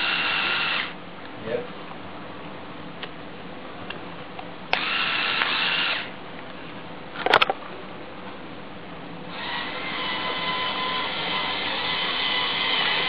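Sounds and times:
small electric motor whining: 0.0s - 1.0s, 4.8s - 6.1s, 9.3s - 13.0s.

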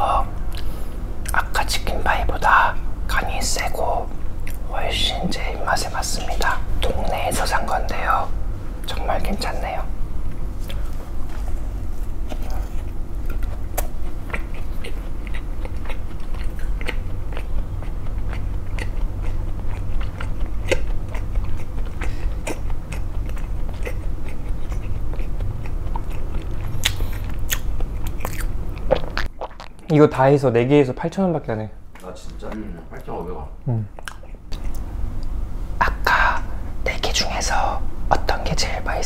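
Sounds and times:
crunchy pastry chewing: 10.3s - 30.0s.

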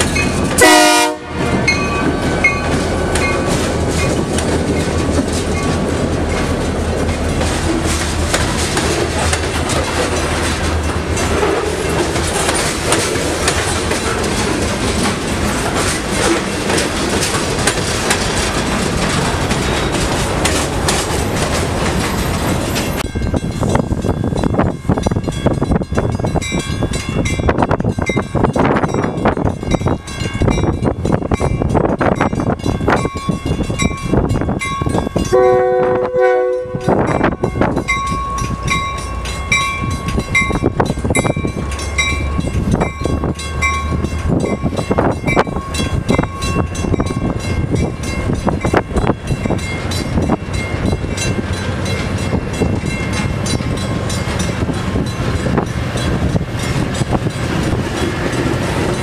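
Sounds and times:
train wheels clicking over rail joints: 0.0s - 0.7s, 1.4s - 59.0s
train horn: 0.6s - 1.7s, 35.3s - 37.1s.

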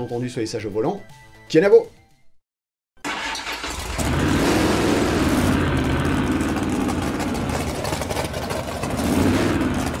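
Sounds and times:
car engine idling and revving: 3.1s - 10.0s.

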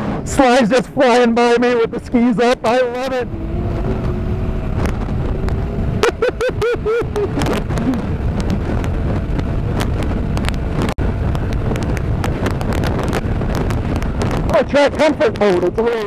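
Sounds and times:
snowmobile engine drone: 0.0s - 16.0s
wind buffeting microphone: 0.0s - 16.0s.

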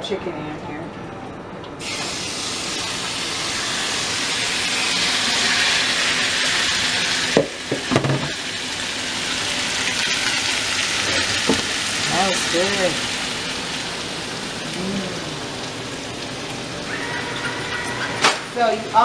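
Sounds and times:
chicken sizzling in frying pan: 1.8s - 19.0s
knocks: 7.4s - 8.4s.

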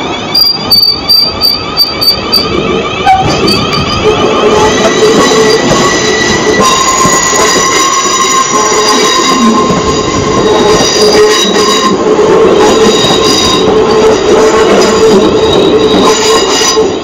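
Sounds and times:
high-pitched squeal: 0.0s - 12.0s
train running gear rumble: 0.0s - 17.0s.

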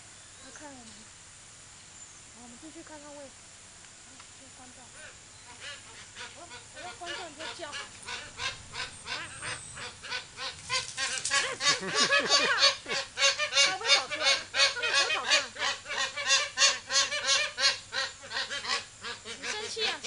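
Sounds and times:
geese honking: 5.0s - 20.0s.

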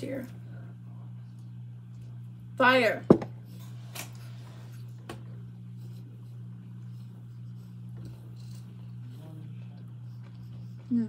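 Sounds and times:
steady low hum: 0.0s - 11.0s
soft chewing: 4.7s - 11.0s.

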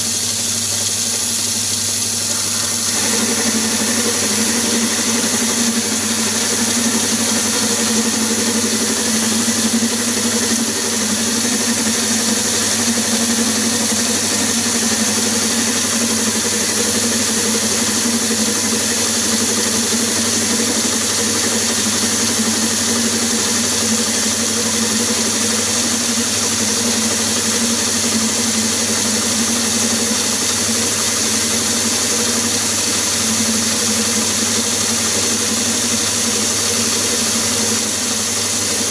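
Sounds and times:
lathe running: 0.0s - 38.9s.

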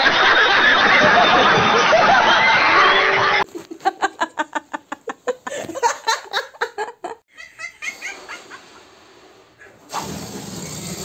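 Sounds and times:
person laughing hard: 3.5s - 8.8s
breathy rush of noise: 7.9s - 9.9s.

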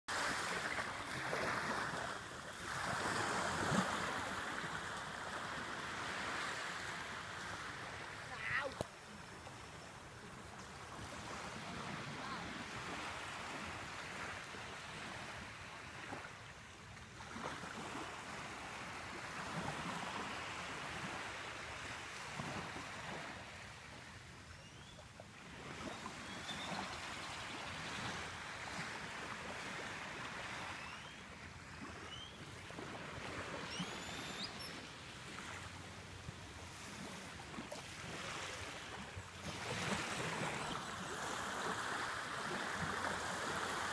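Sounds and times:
waves washing onto beach: 0.1s - 24.3s, 25.2s - 43.9s
faint high rising chirps: 33.6s - 34.8s.

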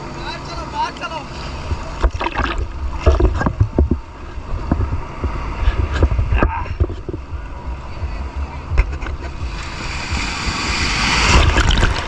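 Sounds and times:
sea water sloshing and splashing: 1.2s - 7.2s, 9.1s - 12.0s
wind on microphone: 1.6s - 12.0s.

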